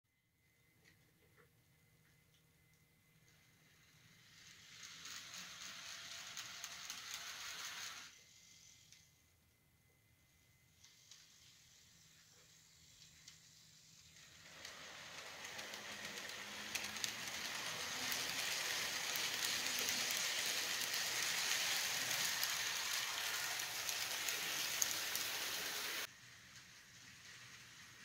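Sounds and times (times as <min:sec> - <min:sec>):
model train wheels rolling: 0:03.2 - 0:09.1, 0:10.2 - 0:28.0.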